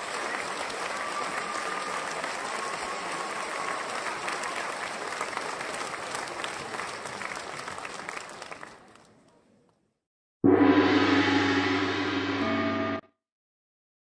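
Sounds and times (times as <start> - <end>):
audience applauding: 0.0 - 9.1
loud music: 10.4 - 13.0.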